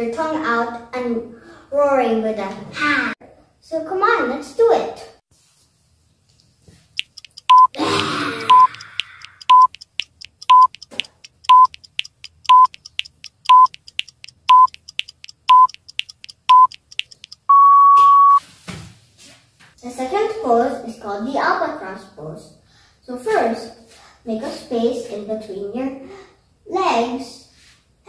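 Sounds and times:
faint ticking: 6.9s - 17.8s
short timer beeps: 7.0s - 18.4s
long beep: 7.5s - 7.8s, 8.4s - 8.8s, 9.4s - 9.7s, 10.5s - 10.7s, 11.5s - 11.7s, 12.5s - 12.7s, 13.5s - 13.7s, 14.5s - 14.7s, 15.5s - 15.8s, 16.5s - 16.8s, 17.4s - 18.4s
child breathy roar: 7.8s - 8.5s.

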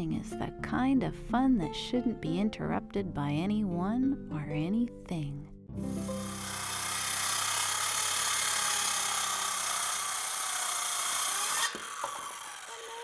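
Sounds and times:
circular saw cutting wood: 5.8s - 13.0s
saw motor winding down: 5.8s - 13.0s.

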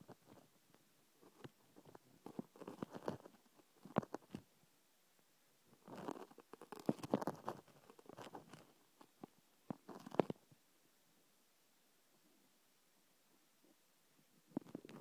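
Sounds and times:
thumb rustling on phone microphone: 0.0s - 0.5s, 1.2s - 4.5s, 5.7s - 10.5s, 14.5s - 15.0s.

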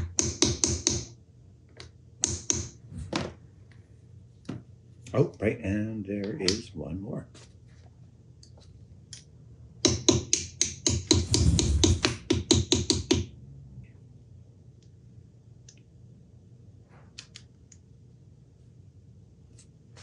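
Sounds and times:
hammer tapping metal pin: 9.8s - 11.2s.

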